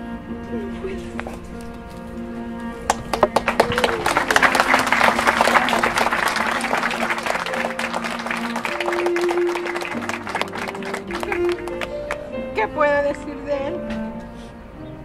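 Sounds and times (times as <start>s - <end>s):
soft background music: 0.0s - 15.0s
audience applauding: 2.9s - 12.3s.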